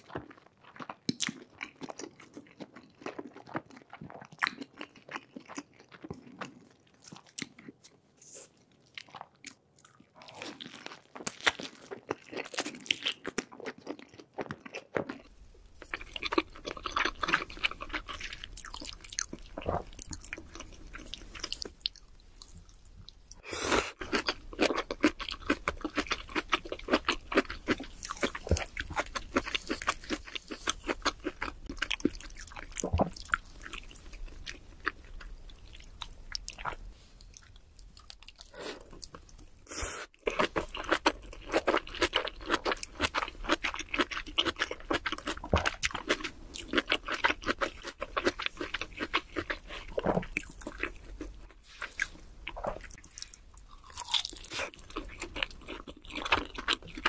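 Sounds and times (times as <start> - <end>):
people chewing and crunching food: 0.0 - 57.0.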